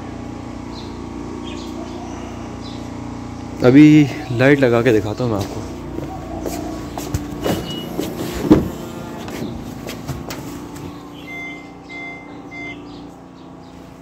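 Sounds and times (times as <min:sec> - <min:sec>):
handling knocks: 0:06.0 - 0:11.0
car door opening: 0:07.1 - 0:11.0
car warning chime beeping: 0:11.1 - 0:13.0.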